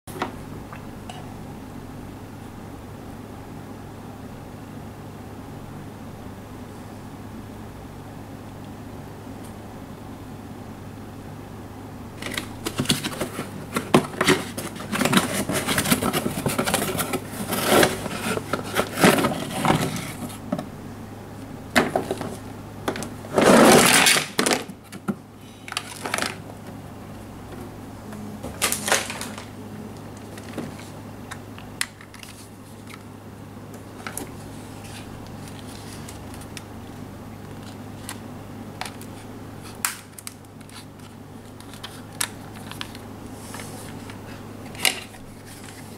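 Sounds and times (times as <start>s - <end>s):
faint low hum: 0.1s - 45.9s
packaging crinkling and rustling: 12.2s - 20.6s, 21.8s - 26.7s, 28.6s - 29.6s, 30.2s - 31.0s, 31.8s - 33.1s, 33.9s - 45.9s.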